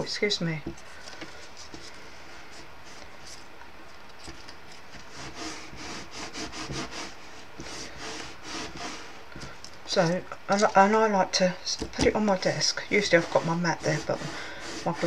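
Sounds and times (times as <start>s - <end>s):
fingers rubbing card strips: 5.0s - 9.2s, 12.5s - 15.0s.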